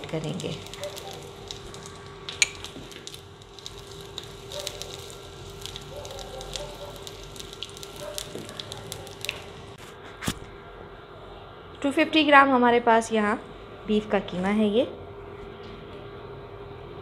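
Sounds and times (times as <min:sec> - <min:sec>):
seeds sizzling in oil: 0:00.0 - 0:09.8
steady hum: 0:00.0 - 0:17.0.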